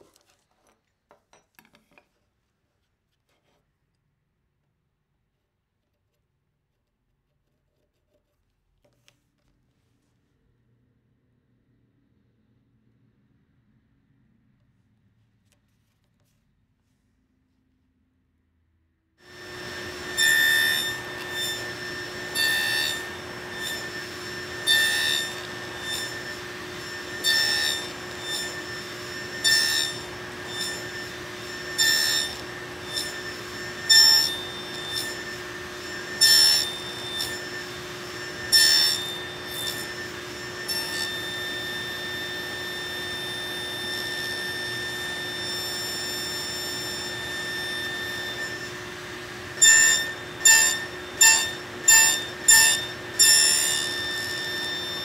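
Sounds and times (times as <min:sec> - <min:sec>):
saw cutting wood: 0:19.2 - 0:55.0
table saw running: 0:19.2 - 0:55.0.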